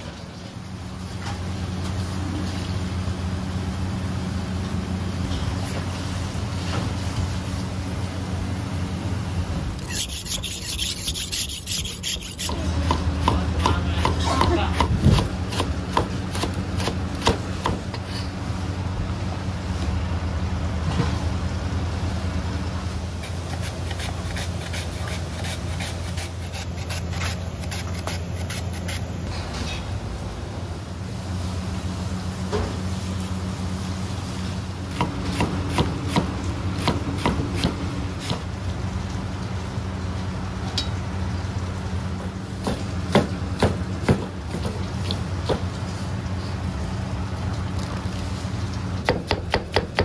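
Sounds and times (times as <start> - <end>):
cucumber rasping on mandoline slicer: 9.7 - 17.0, 23.2 - 29.3.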